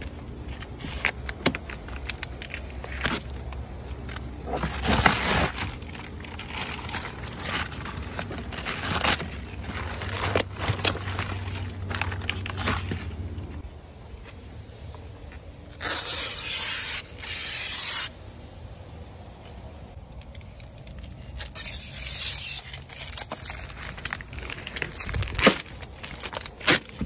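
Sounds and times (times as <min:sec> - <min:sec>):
paper and tape crinkling: 0:00.0 - 0:13.6, 0:15.2 - 0:18.2, 0:19.9 - 0:27.0
paper rustling: 0:00.0 - 0:13.6.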